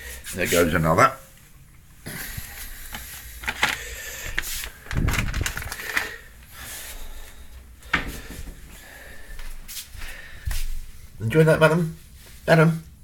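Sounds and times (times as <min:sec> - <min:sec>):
packets handled: 0:02.8 - 0:06.4.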